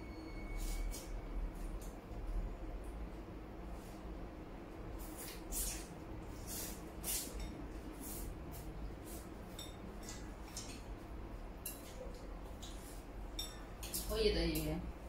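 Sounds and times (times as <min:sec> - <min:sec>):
chopsticks clinking on bowls: 0:09.5 - 0:10.9, 0:11.6 - 0:14.7.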